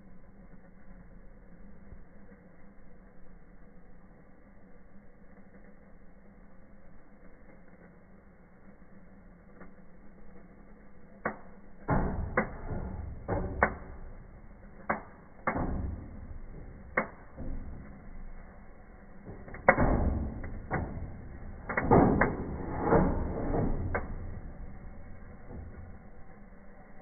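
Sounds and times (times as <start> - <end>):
firework fountain hissing: 0.0 - 27.0
firework pops and bangs: 11.3 - 26.0.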